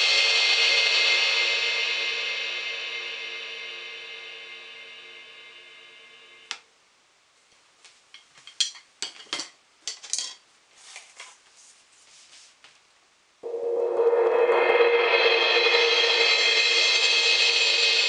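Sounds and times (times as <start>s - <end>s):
crash cymbal ringing: 0.0s - 6.5s, 13.4s - 18.0s
mallet roll on cymbal: 0.0s - 6.5s, 13.4s - 18.0s.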